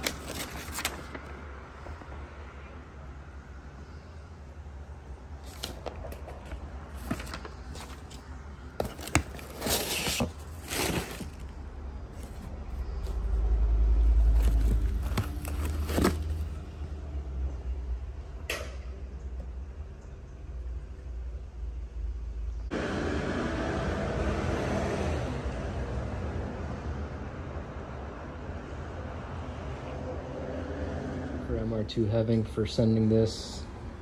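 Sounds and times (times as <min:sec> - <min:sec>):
packaging rustling and crinkling: 0:00.0 - 0:02.0, 0:05.4 - 0:11.6, 0:12.2 - 0:13.4, 0:14.1 - 0:16.6.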